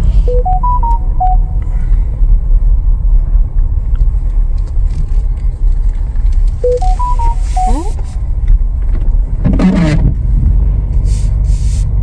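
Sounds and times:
engine and road rumble in car: 0.0 - 12.0
electronic chime: 0.3 - 1.6, 6.6 - 8.1.

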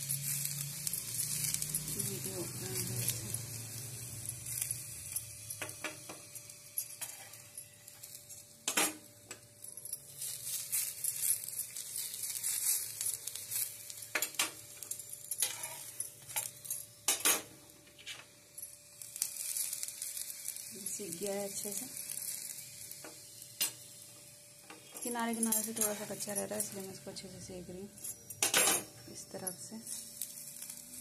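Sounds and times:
flatbread sizzling in oil: 0.0 - 31.0
spoon clinking and scraping pan: 4.2 - 9.1, 15.2 - 17.5, 24.7 - 27.0.

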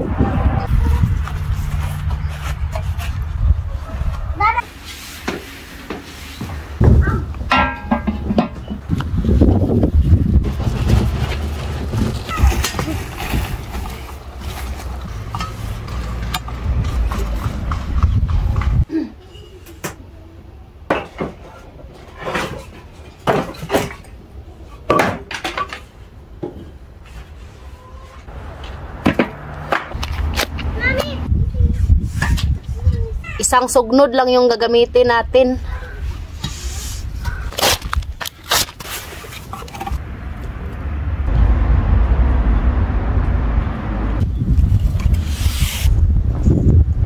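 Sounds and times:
wind buffeting microphone: 0.0 - 4.4, 8.6 - 12.6, 16.6 - 18.9, 30.6 - 33.4, 40.0 - 47.0
wooden boards clattering: 22.2 - 24.0.

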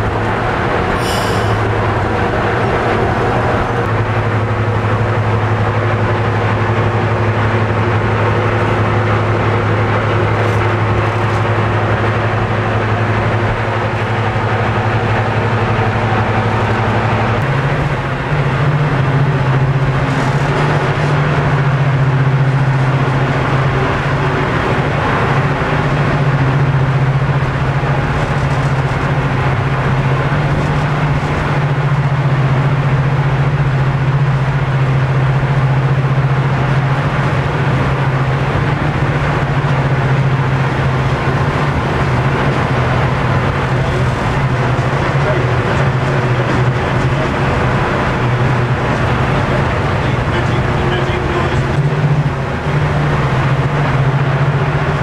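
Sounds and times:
diesel locomotive engines running: 0.0 - 55.0.

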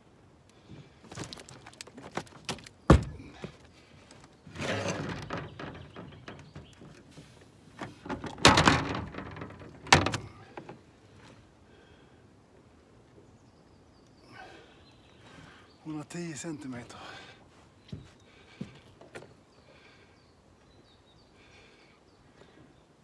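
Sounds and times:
knocks and thunks against boat: 2.1 - 3.6, 4.5 - 10.8.

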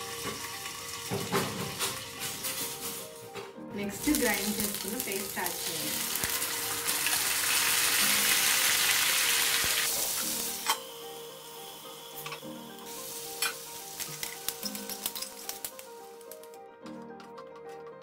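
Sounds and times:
paste sizzling in hot oil: 3.9 - 16.3.

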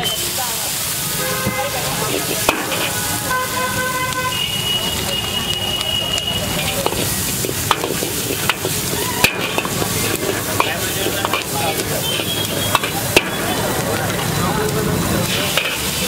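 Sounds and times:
vegetables sizzling in a wok: 0.0 - 16.0
ladle stirring and scraping: 1.3 - 4.7, 6.5 - 14.4, 15.1 - 16.0
ladle clanking against wok: 1.4 - 3.0, 6.7 - 14.3, 15.2 - 16.0.

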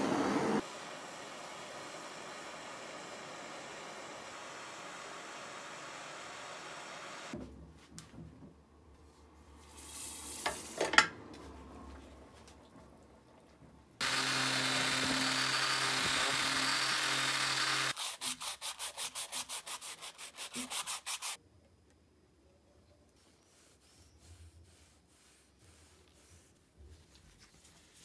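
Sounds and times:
gas torch hissing: 0.0 - 7.4
sandpaper rubbing: 17.9 - 21.4, 23.2 - 28.0.

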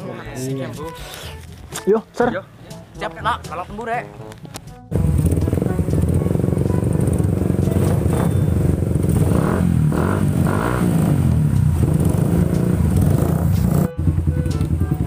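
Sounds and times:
motorcycle engines revving: 4.9 - 15.0.

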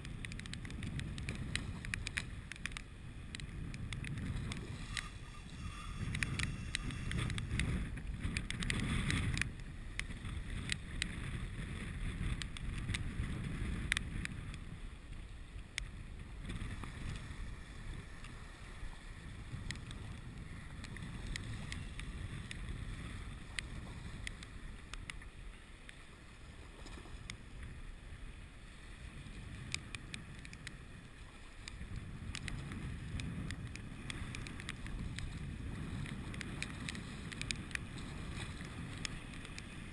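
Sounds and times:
light clicks: 0.0 - 5.1, 36.0 - 37.9
choppy water lapping: 0.0 - 39.9
wind rumbling on microphone: 0.0 - 39.9.

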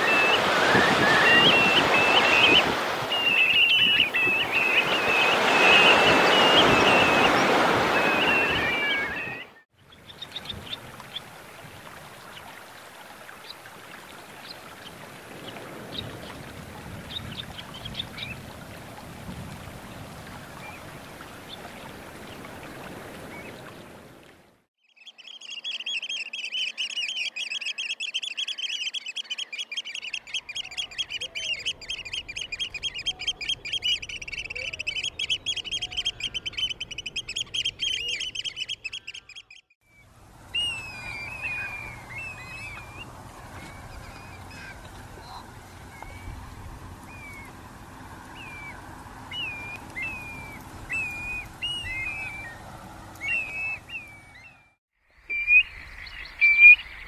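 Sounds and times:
wavering shorebird calls: 0.0 - 11.3, 24.9 - 57.0
flock of birds piping: 0.0 - 24.0, 24.9 - 57.0.

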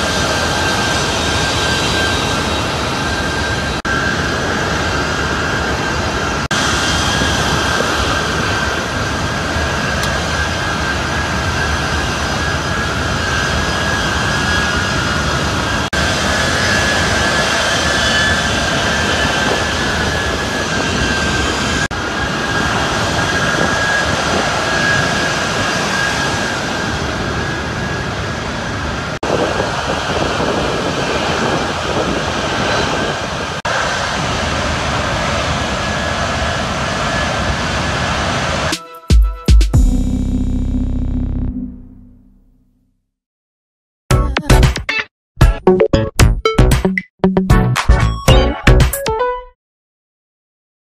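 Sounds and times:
jet engine roar with whine: 0.0 - 38.8.

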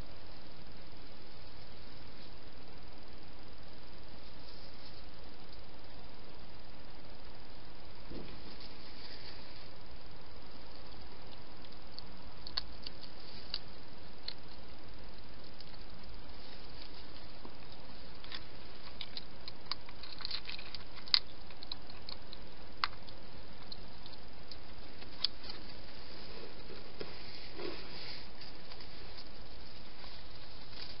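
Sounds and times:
steady hiss: 0.0 - 31.0
hedgehog eating: 8.1 - 31.0.

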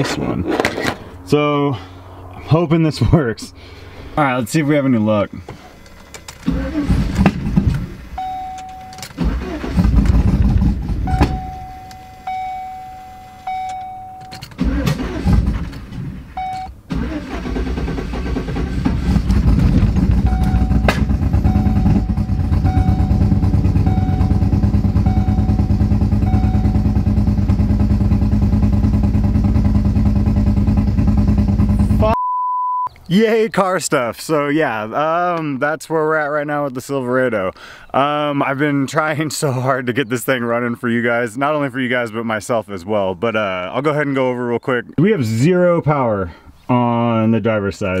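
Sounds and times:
engine cranking: 5.7 - 32.0
engine idling with misfire: 6.0 - 12.7, 14.4 - 32.1
warning chime beeping: 8.2 - 9.1, 11.1 - 14.4, 20.2 - 27.2.

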